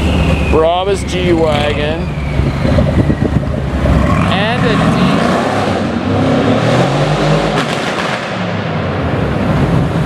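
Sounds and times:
sharp exhaust cracks: 0:00.0 - 0:06.1
car exhaust pulling away: 0:00.0 - 0:10.0.

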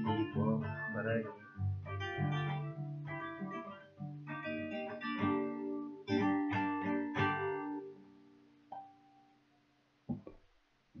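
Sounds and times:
plucked guitar note: 0:00.0 - 0:07.9
acoustic guitar strummed chords: 0:00.0 - 0:09.2.

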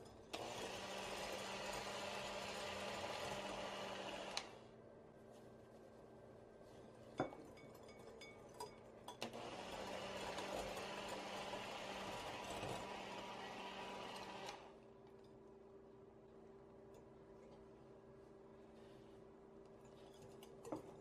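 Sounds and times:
electric hand mixer whirring: 0:00.3 - 0:04.6, 0:09.2 - 0:14.8.

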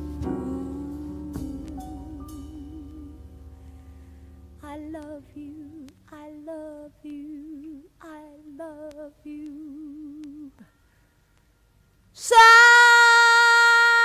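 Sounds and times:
woman humming with vibrato: 0:00.0 - 0:03.3.

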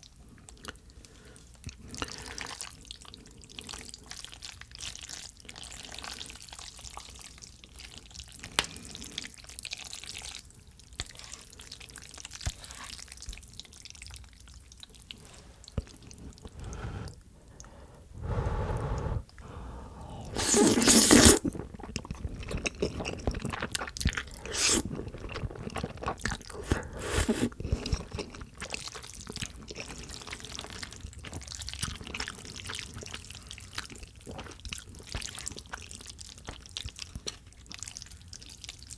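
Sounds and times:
chewing: 0:00.0 - 0:17.7, 0:18.6 - 0:38.9
loud slurp of noodles: 0:18.2 - 0:21.6, 0:24.4 - 0:24.9, 0:26.6 - 0:27.6.

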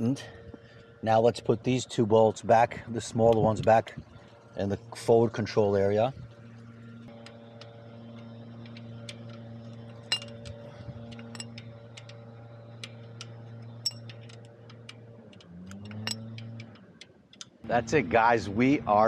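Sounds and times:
steady low hum: 0:00.0 - 0:19.0
wrench and bolts clicking: 0:08.7 - 0:12.2, 0:12.8 - 0:17.6.

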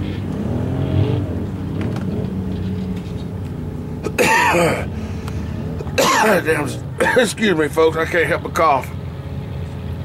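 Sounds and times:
truck engine revving in mud: 0:00.0 - 0:02.6
man coughing: 0:04.0 - 0:04.9, 0:05.9 - 0:07.3.

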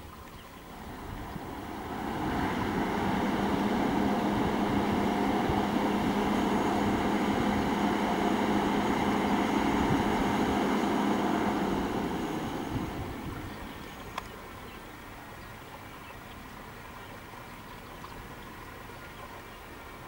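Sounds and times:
truck diesel engine running: 0:00.7 - 0:14.1.

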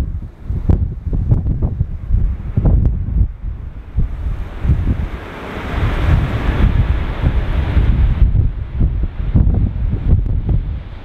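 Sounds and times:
gusty wind buffeting microphone: 0:00.0 - 0:11.0
microphone wind pops: 0:00.0 - 0:11.0.

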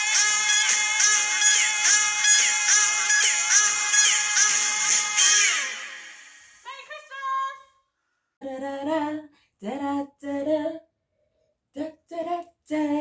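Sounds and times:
woman singing: 0:08.4 - 0:10.9, 0:11.7 - 0:13.0.

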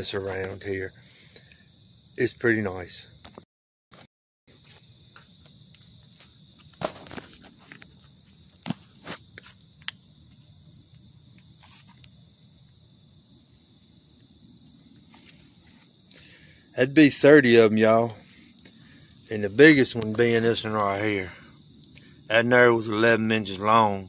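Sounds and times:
faint footsteps: 0:14.7 - 0:16.0.

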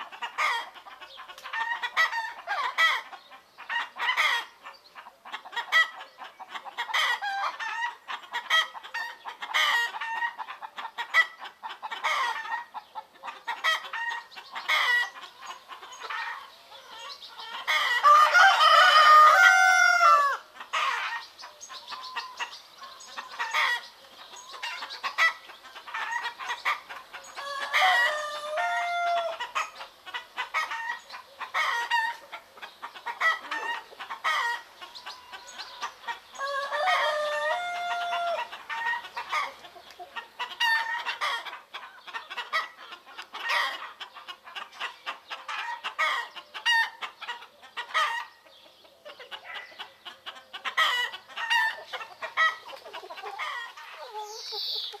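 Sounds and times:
hens clucking: 0:00.0 - 0:55.0
roosters crowing: 0:16.0 - 0:32.3, 0:33.0 - 0:39.6.

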